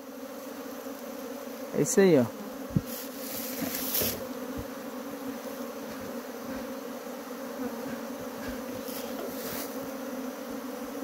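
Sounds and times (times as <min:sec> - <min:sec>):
bees buzzing: 0:00.0 - 0:11.0.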